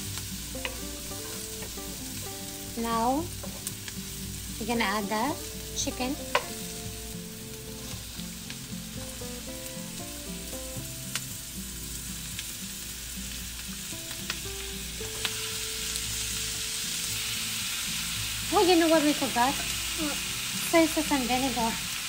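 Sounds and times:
food sizzling in a pan: 0.0s - 22.0s
sharp clicks in a pan: 0.2s - 1.8s, 6.2s - 6.6s, 11.1s - 11.3s, 15.0s - 15.4s.

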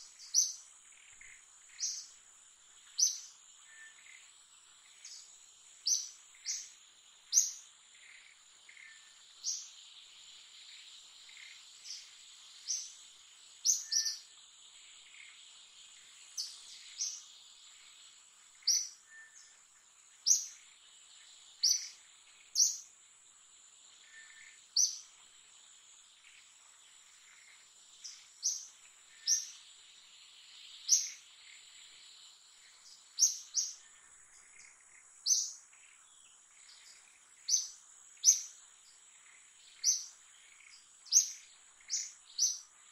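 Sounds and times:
high chirping calls: 13.6s - 14.2s, 21.6s - 22.9s, 27.3s - 29.7s, 30.7s - 31.6s, 32.7s - 33.8s, 35.2s - 35.6s, 37.5s - 38.6s, 39.7s - 42.7s.

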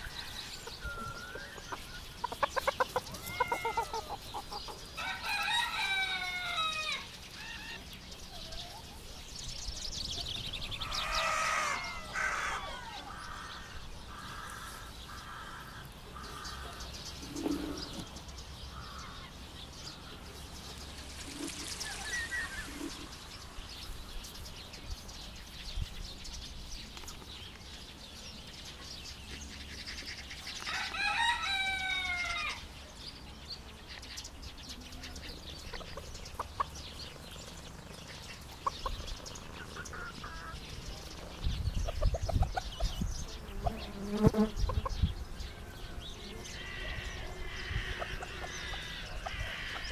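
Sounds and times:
hens clucking: 0.0s - 7.0s, 38.1s - 41.0s, 46.2s - 49.9s.

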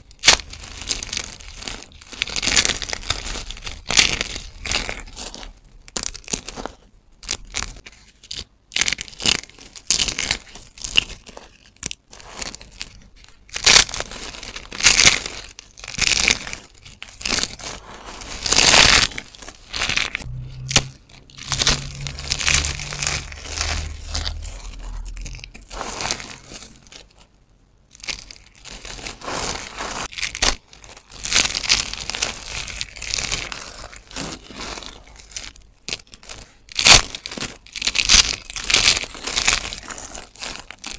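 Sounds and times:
soap chips crunching in hands: 27.9s - 40.9s.

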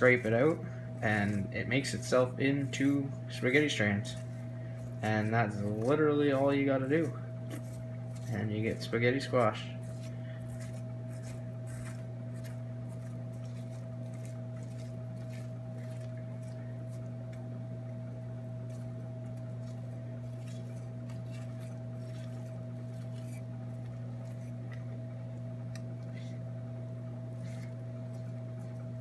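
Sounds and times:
fork scraping squash: 0.0s - 26.6s, 27.2s - 29.0s
steady low hum: 0.0s - 29.0s.

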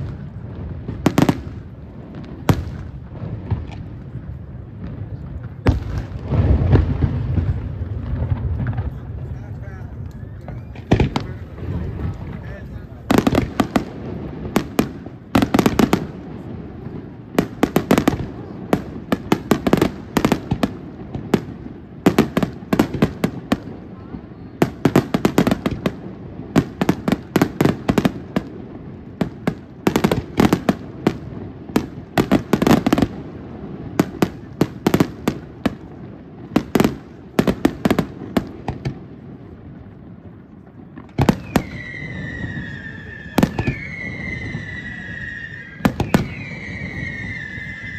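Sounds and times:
fireworks bursts: 0.0s - 47.9s
fireworks falling whistles: 5.5s - 16.2s, 40.9s - 47.9s.

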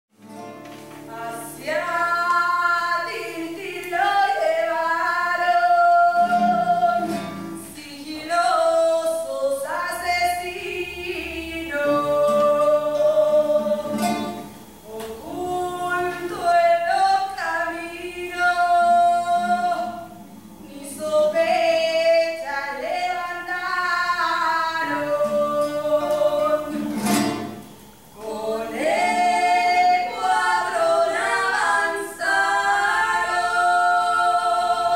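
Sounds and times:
acoustic guitar: 0.1s - 34.9s
person singing: 1.1s - 27.1s.

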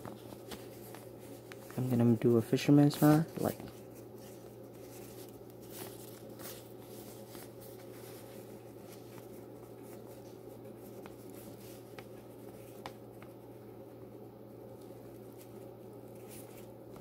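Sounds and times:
steady low hum: 0.0s - 17.0s
fishing line rustling: 2.8s - 13.4s.

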